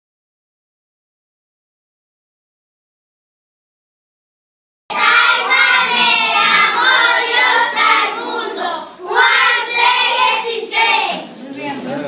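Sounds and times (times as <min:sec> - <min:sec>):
children singing: 0:04.9 - 0:11.3.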